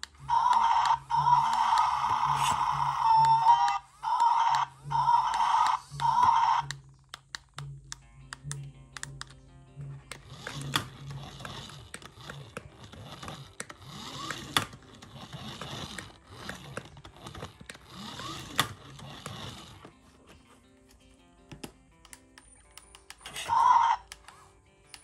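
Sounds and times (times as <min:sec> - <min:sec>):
toy car motor whirring: 0:00.0 - 0:06.9, 0:10.1 - 0:20.0, 0:23.2 - 0:24.3
music: 0:00.0 - 0:25.0.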